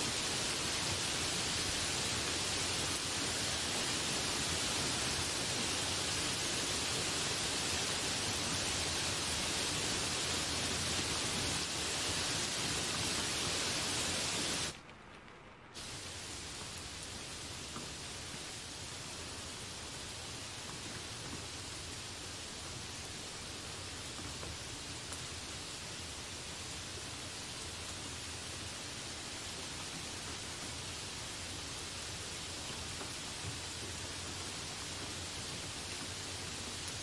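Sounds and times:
heavy rain on leaves: 0.0s - 37.0s.

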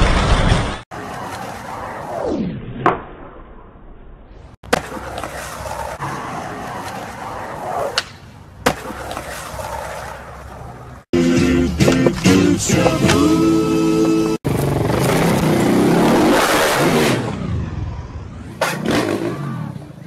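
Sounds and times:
skateboard wheels rolling on asphalt: 0.0s - 2.3s, 4.7s - 11.1s.

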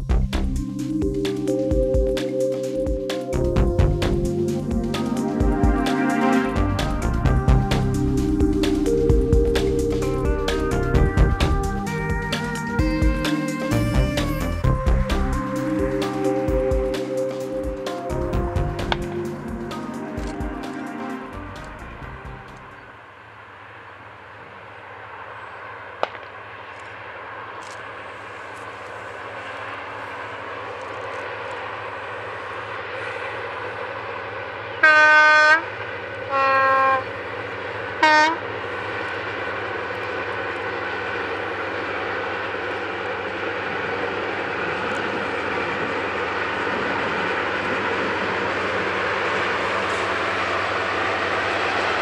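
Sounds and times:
diesel locomotive engine: 0.0s - 52.0s
two-tone train horn: 4.6s - 8.0s, 11.0s - 22.7s, 34.7s - 38.8s.

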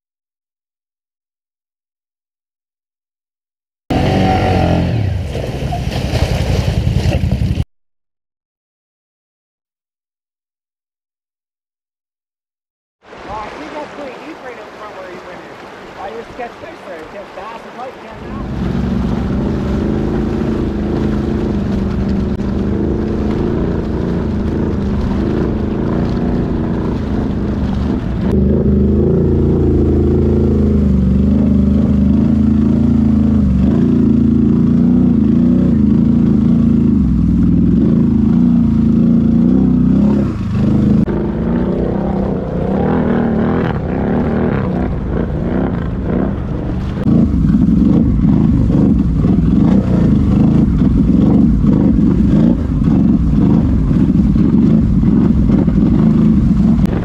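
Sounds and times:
atv engine running: 3.9s - 7.6s, 18.2s - 57.0s
water churning: 3.9s - 7.6s, 13.0s - 57.0s.

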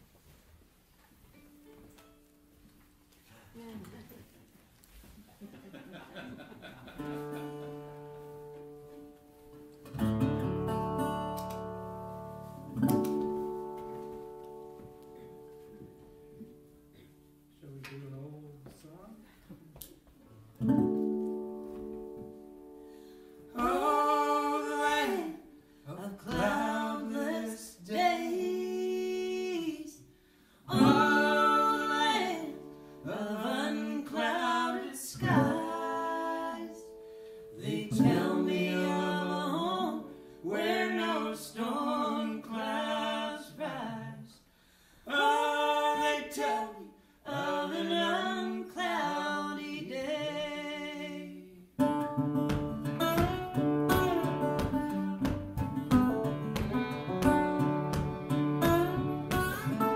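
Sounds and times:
acoustic guitar: 0.0s - 59.9s
man and woman singing: 23.5s - 52.0s
plucked fiddle: 52.5s - 59.9s.

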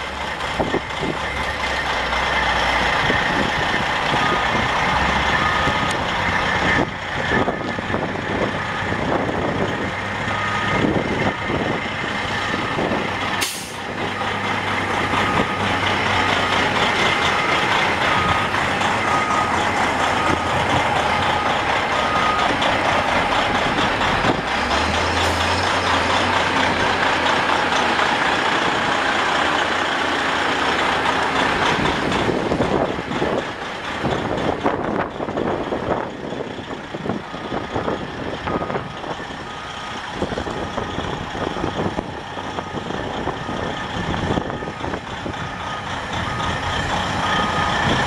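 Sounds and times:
diesel truck engine running: 0.0s - 48.0s
reversing alarm beeping: 4.1s - 7.7s, 10.2s - 24.4s, 37.2s - 48.0s.

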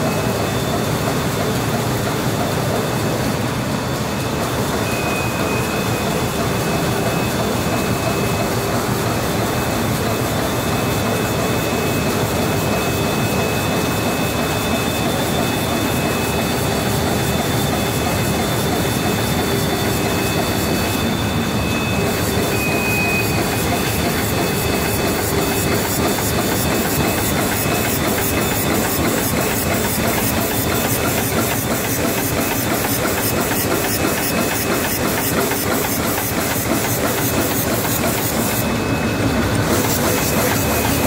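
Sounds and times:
machine hissing and whining: 0.0s - 41.0s
fast even machine clicking: 23.3s - 41.0s.

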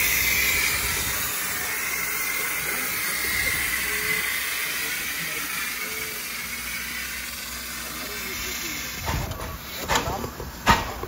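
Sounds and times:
steam locomotive hissing: 0.0s - 11.0s.

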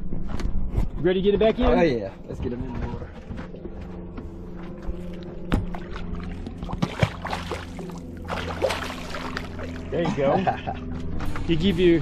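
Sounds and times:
low hum: 0.0s - 12.0s
fish splashing into water: 5.5s - 9.9s.

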